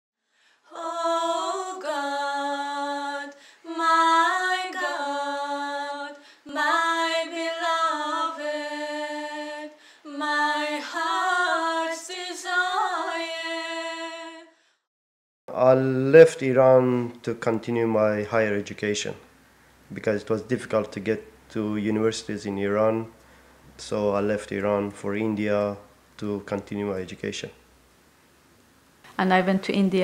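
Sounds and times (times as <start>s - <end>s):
person singing unaccompanied: 0.7s - 14.5s.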